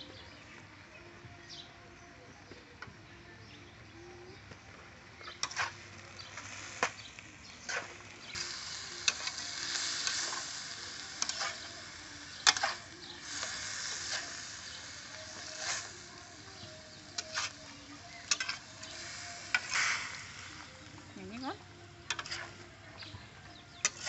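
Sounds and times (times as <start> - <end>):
metal spatula scraping a wok: 5.4 - 5.9, 7.6 - 16.3, 17.2 - 17.6, 18.2 - 20.4, 22.1 - 22.6
pan sizzling: 5.4 - 22.6.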